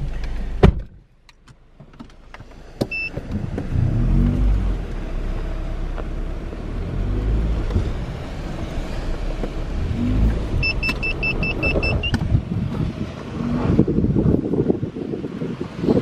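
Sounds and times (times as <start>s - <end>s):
car engine and tyre rumble: 0.0s - 16.0s
car warning chime beeping: 2.9s - 3.2s, 10.6s - 12.2s.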